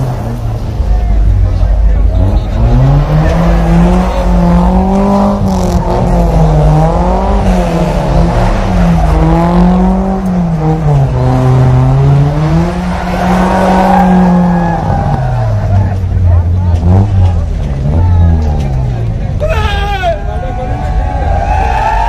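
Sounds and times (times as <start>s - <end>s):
tyres spinning and sliding: 0.0s - 19.4s
car engine revving hard: 1.8s - 18.2s.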